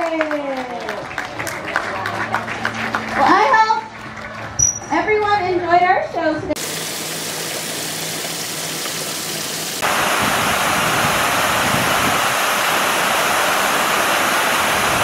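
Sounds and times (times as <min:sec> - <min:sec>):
waterfall rushing into pond: 0:06.6 - 0:15.0.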